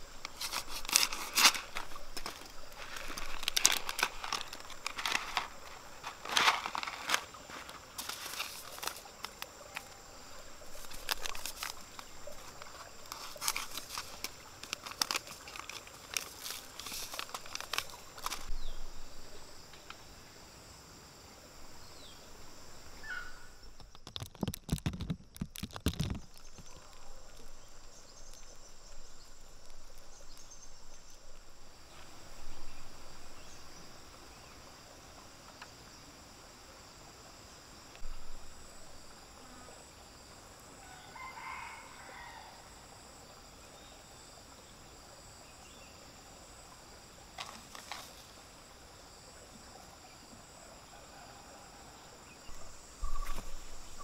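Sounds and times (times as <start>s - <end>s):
paper seed packets crinkling: 0.0s - 10.0s, 10.6s - 18.6s, 23.8s - 27.4s
high insect drone: 0.0s - 54.0s.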